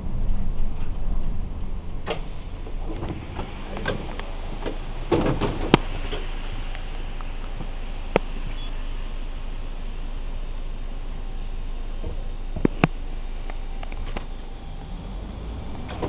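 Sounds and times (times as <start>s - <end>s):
bus doors clicking and clunking: 0.0s - 16.0s
bus engine hum: 0.0s - 16.0s
air brake hiss: 2.0s - 11.9s.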